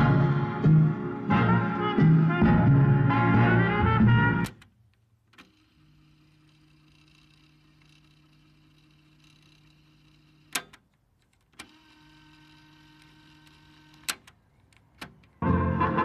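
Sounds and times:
music playing from tape: 0.0 - 4.5, 15.4 - 16.0.

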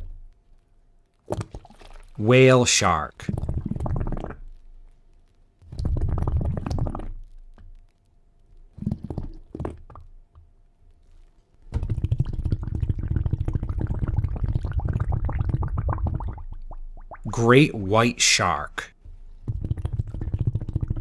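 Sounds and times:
water bubbling and gurgling: 3.2 - 4.4, 5.7 - 7.2, 11.8 - 17.6, 19.4 - 21.0.

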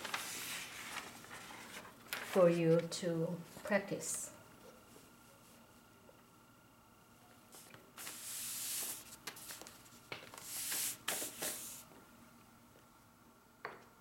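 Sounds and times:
paper rustling and crackling: 0.0 - 2.9, 7.6 - 11.8.

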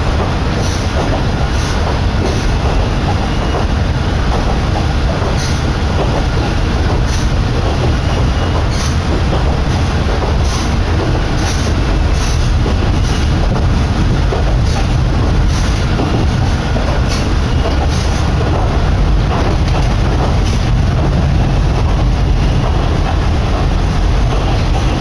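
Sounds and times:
train wheels rumbling on rail: 0.0 - 25.0
wind buffeting: 0.0 - 25.0
wheels clicking over rail joints: 4.3 - 25.0.

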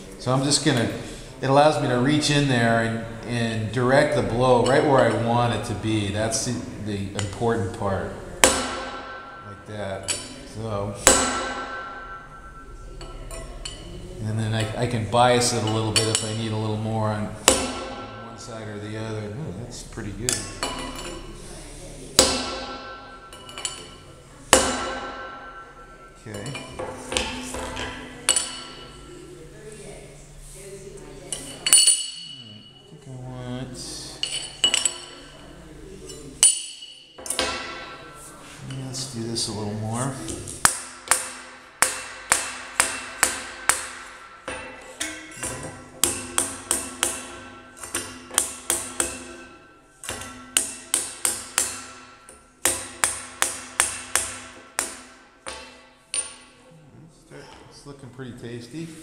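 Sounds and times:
hammer striking steel bar: 8.4 - 9.5, 11.0 - 13.9, 17.4 - 18.4, 22.2 - 29.0, 36.4 - 38.1, 40.6 - 56.5
hammer on metal clinks: 31.6 - 32.9, 36.4 - 38.1.

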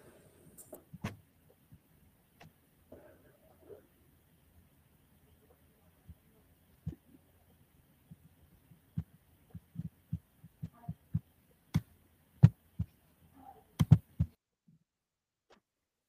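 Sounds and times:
soft thumps and taps: 13.8 - 14.4.

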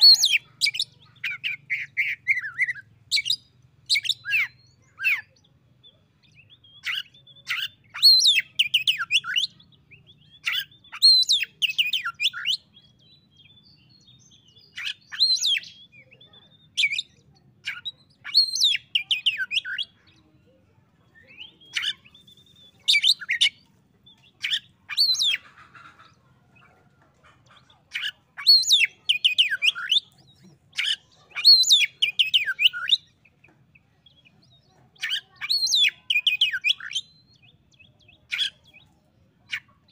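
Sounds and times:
bird singing whistled notes: 21.1 - 23.6, 30.8 - 33.2.

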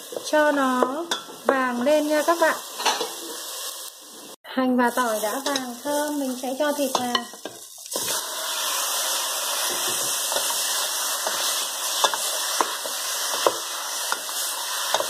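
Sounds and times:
meat sizzling in hot oil: 0.0 - 15.0.

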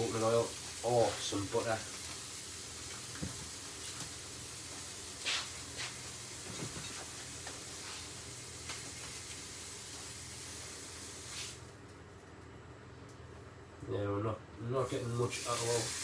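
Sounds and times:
steak sizzling in a frying pan: 0.0 - 11.6, 14.9 - 16.0.

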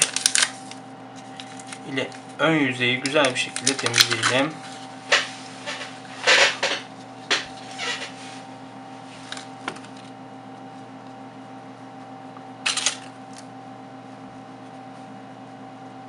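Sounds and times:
paper sachet tearing and crinkling: 0.0 - 2.0, 3.2 - 4.5
steady low hum: 0.0 - 16.0.

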